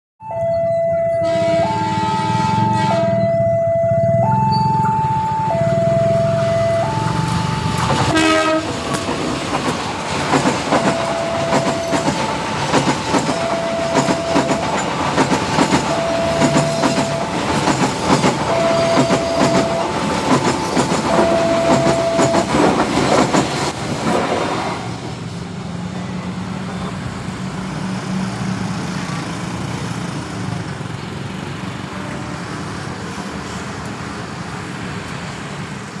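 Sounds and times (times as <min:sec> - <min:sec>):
level-crossing alarm chiming: 0:00.2 - 0:08.0, 0:10.6 - 0:22.8
passenger train passing: 0:00.2 - 0:36.0
locomotive horn blast: 0:00.8 - 0:04.0, 0:05.4 - 0:09.3, 0:13.3 - 0:14.7, 0:15.8 - 0:17.6, 0:18.4 - 0:22.6
wheels clicking over rail joints: 0:07.2 - 0:24.4.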